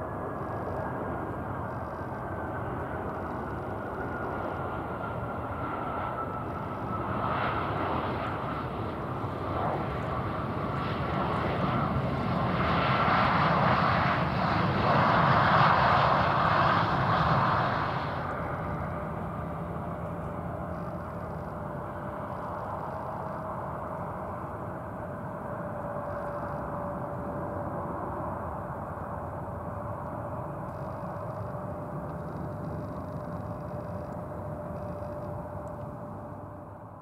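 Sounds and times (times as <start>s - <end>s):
constant engine whine: 0.0s - 37.0s
jet engines idling: 15.8s - 37.0s.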